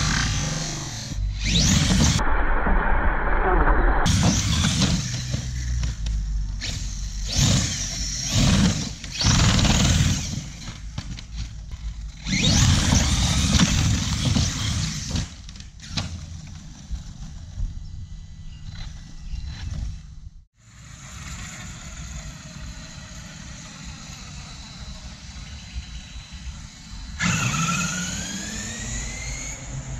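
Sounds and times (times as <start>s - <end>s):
electric motor whining: 4.1s - 10.9s, 11.6s - 16.2s, 20.7s - 29.9s.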